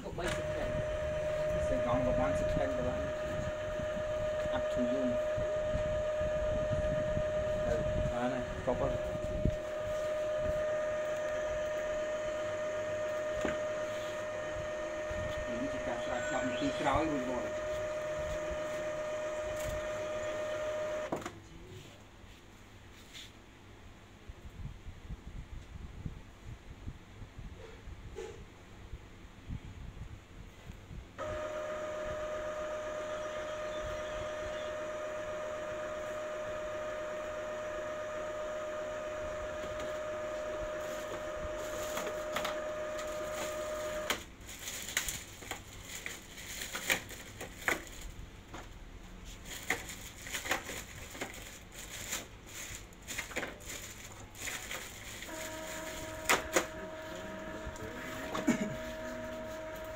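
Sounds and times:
printer mechanism humming: 0.0 - 21.3, 31.2 - 59.9
printer clicks and rattles: 7.9 - 21.3, 34.8 - 44.3, 54.5 - 59.9.

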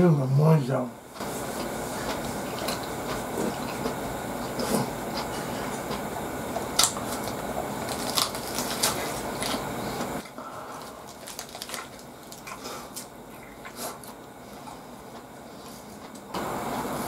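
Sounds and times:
steady background hiss: 0.0 - 17.0
crunchy biting and chewing: 1.2 - 16.3
paper wrapper crinkling: 6.8 - 9.6, 11.0 - 13.0.

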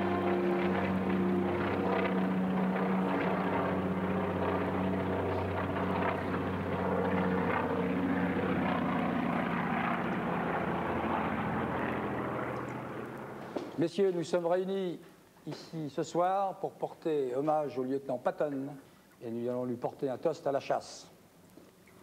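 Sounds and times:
propeller plane flying past: 0.0 - 13.8.

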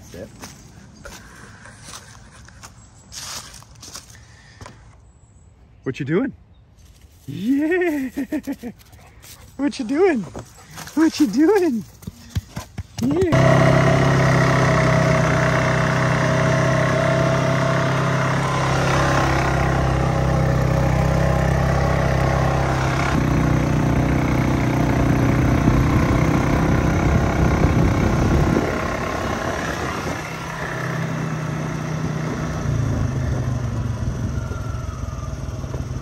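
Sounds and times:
quad bike engine running: 11.0 - 36.0.

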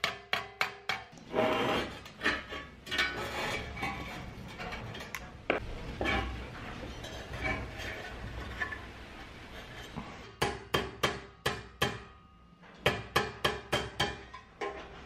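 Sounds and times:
mallet striking sheet metal: 10.4 - 14.3.

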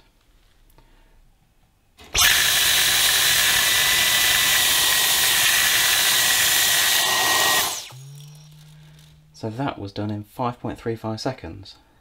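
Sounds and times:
vacuum cleaner whining: 2.0 - 8.4
vacuum motor winding down: 2.0 - 8.8
rice being sucked up: 2.2 - 8.0.

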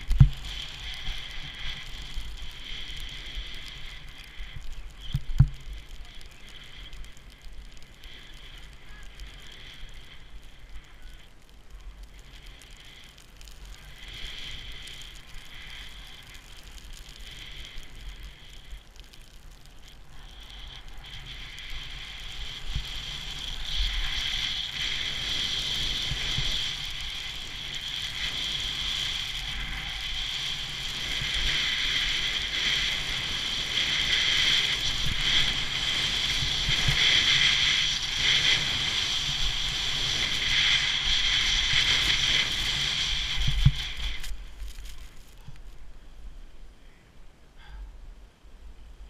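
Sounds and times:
wind on microphone: 0.0 - 11.2, 20.1 - 46.7
skis scraping over snow: 0.0 - 45.9.

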